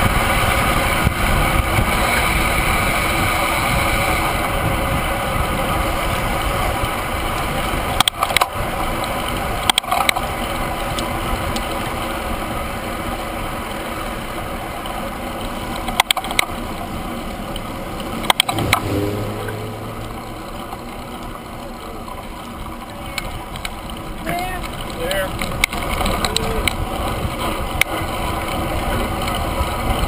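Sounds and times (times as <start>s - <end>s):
wind and road rush: 0.0s - 30.0s
low hum: 14.1s - 30.0s
sharp clicks or knocks: 18.2s - 19.6s.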